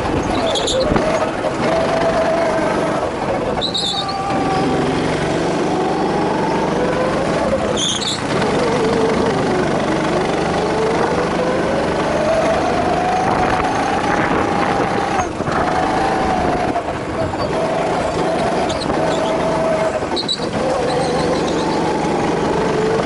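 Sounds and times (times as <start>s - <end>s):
go-kart engine running hard: 0.0s - 23.0s.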